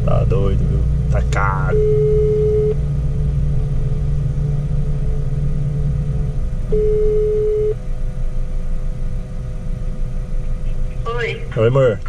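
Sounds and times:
steady low rumble: 0.0 - 12.0
phone ringback tone: 1.8 - 2.8, 6.7 - 7.8.

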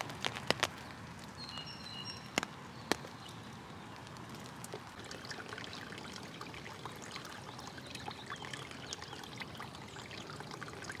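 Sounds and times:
rainwater trickling over pavement: 0.0 - 11.0
patter of drips and splashes: 2.4 - 11.0.

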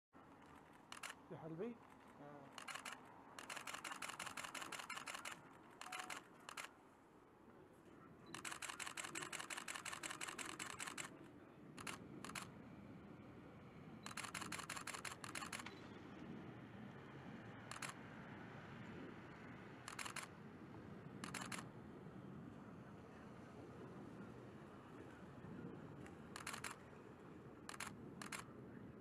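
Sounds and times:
faint low background noise: 0.2 - 29.0
camera shutter burst clicks: 0.4 - 1.2, 2.5 - 6.7, 8.3 - 11.1, 11.8 - 12.5, 14.1 - 15.8, 17.7 - 18.0, 19.9 - 20.3, 21.2 - 21.7, 26.4 - 26.8, 27.7 - 28.5.

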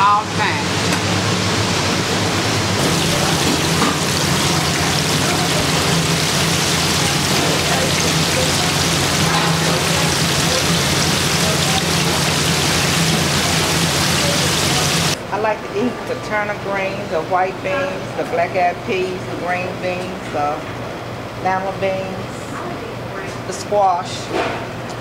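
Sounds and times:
oil bubbling and sizzling in fryer: 0.0 - 15.2.

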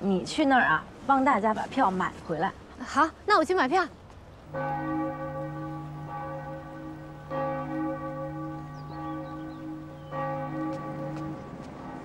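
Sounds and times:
large church bell tolling: 4.5 - 12.0.

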